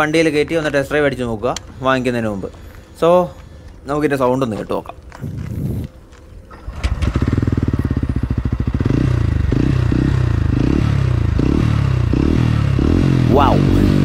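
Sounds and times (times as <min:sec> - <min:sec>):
motorcycle engine starting and revving: 0:06.5 - 0:14.0.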